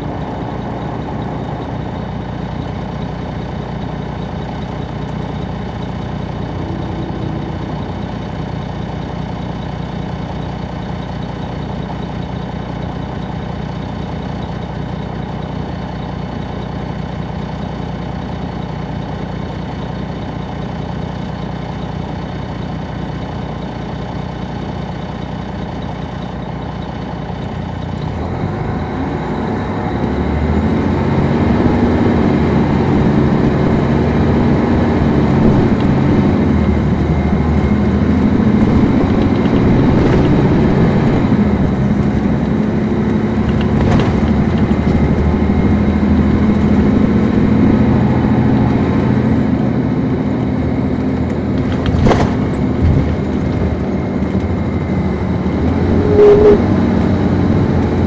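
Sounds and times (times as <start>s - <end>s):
bus diesel engine: 0.0s - 58.0s
faint high whine: 55.7s - 56.7s.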